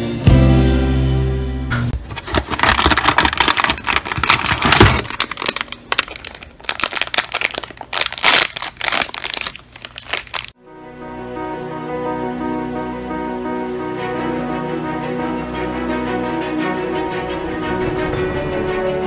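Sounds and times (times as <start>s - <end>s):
plastic wrapper crinkling: 2.0s - 10.6s
wrapper tearing open: 2.0s - 10.6s
soft background music: 10.6s - 19.0s.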